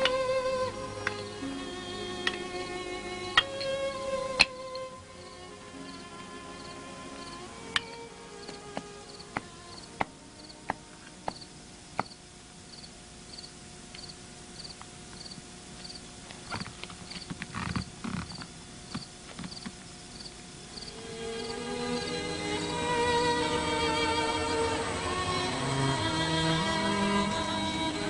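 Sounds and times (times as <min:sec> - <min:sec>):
music: 0:00.0 - 0:11.6, 0:20.7 - 0:28.0
crickets chirping: 0:00.0 - 0:27.9
sharp knocks: 0:10.7 - 0:11.4, 0:12.0 - 0:12.2.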